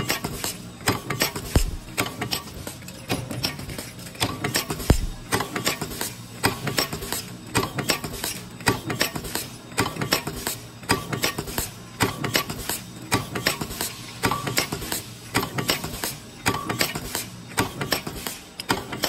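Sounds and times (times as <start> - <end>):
pneumatic press clattering: 0.0 - 19.0.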